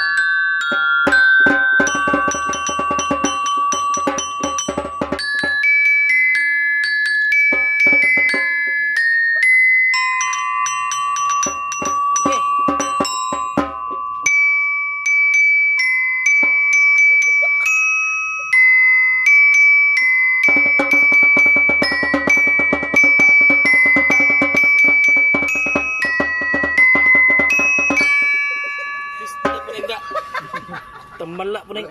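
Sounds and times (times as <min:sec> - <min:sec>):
metallophone melody: 0:00.0 - 0:31.9
fast percussion beat: 0:00.7 - 0:05.9, 0:07.5 - 0:08.9, 0:10.0 - 0:14.3, 0:16.3 - 0:17.7, 0:20.4 - 0:31.7.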